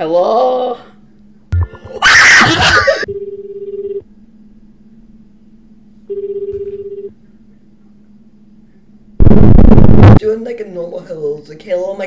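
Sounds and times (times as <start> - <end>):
faint steady hum: 0.0 - 12.0
phone ringback tone: 3.1 - 4.0, 6.1 - 7.1
loud noisy burst: 9.2 - 10.2.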